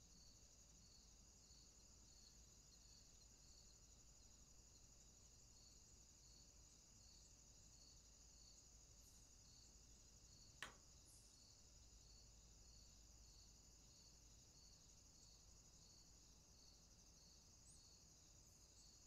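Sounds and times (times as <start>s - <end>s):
insects chirring: 0.0s - 19.0s
sharp click: 10.6s - 10.8s.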